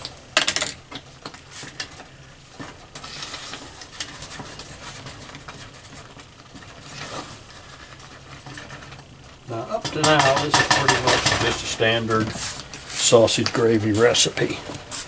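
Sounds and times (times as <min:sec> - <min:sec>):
steady low hum: 0:00.0 - 0:15.0
wooden spatula scraping gravy: 0:02.6 - 0:15.0.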